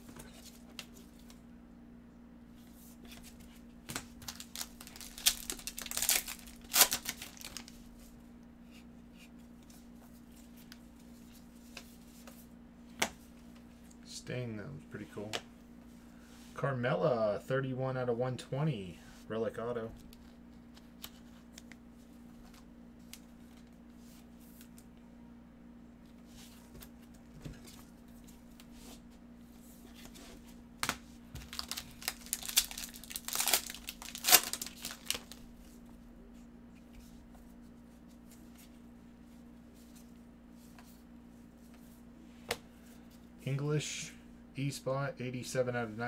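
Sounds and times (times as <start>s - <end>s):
faint steady hum: 0.0s - 46.0s
foil wrapper tearing and crinkling: 4.2s - 7.7s, 31.4s - 35.4s.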